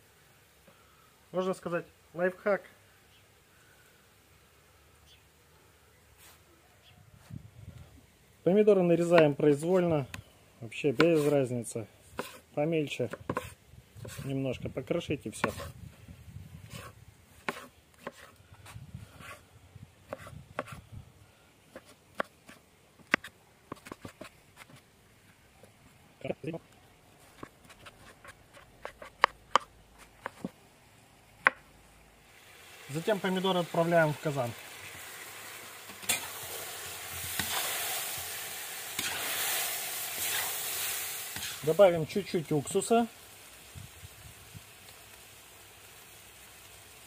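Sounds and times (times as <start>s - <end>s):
food sizzling in pot: 10.8s - 14.4s, 15.3s - 15.8s, 32.2s - 47.0s
knife chopping on wooden board: 12.2s - 12.4s, 13.1s - 14.3s, 15.4s - 15.7s, 16.7s - 18.3s, 20.1s - 20.8s, 21.7s - 24.8s, 27.4s - 30.5s.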